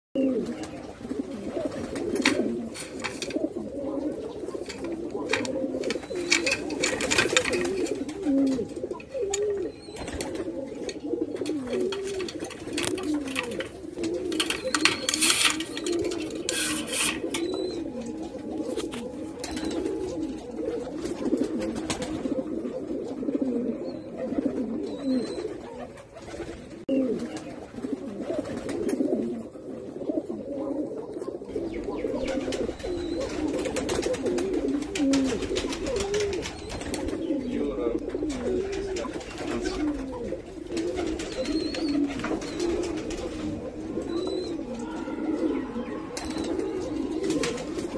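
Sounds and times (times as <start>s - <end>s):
pigeons cooing: 0.2s - 47.9s
brief rustling: 11.4s - 19.1s.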